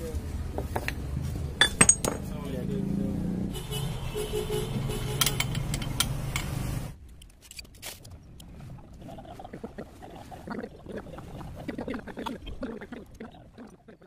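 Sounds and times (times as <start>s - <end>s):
metal tools clinking: 1.6s - 2.3s.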